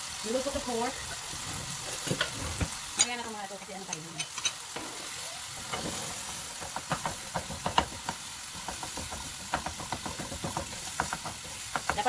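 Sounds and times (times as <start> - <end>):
meat sizzling in a frying pan: 0.0 - 12.0
spatula scraping a pan: 4.1 - 12.0.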